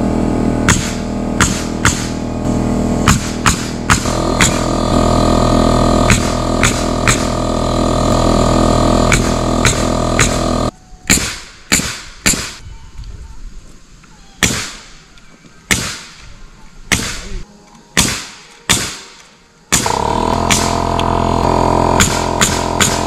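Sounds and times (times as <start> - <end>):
nails being driven into wood: 0.7 - 2.2, 3.0 - 5.0, 6.1 - 7.6, 9.0 - 12.6, 15.7 - 16.1, 16.9 - 17.3, 18.0 - 23.0.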